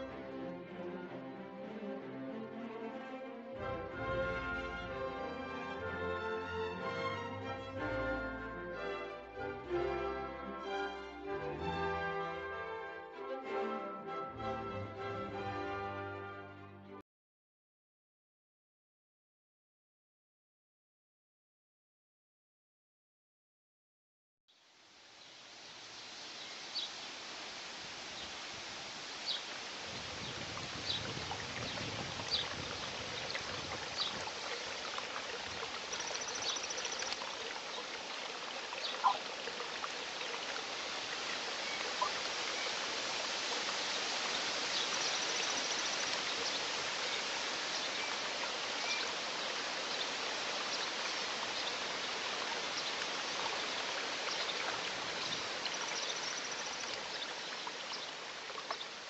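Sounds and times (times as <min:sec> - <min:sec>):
high bird trills: 0:38.9 - 0:39.2.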